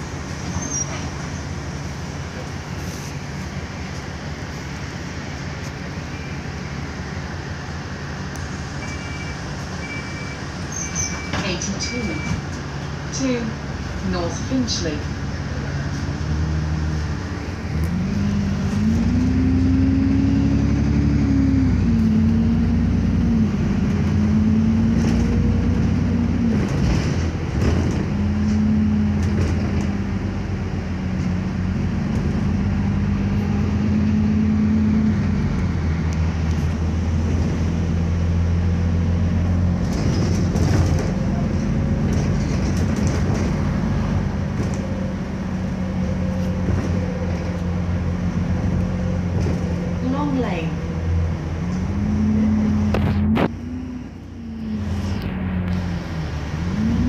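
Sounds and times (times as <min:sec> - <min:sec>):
bus diesel engine accelerating: 0:00.0 - 0:57.0
bus interior rattles: 0:00.0 - 0:57.0.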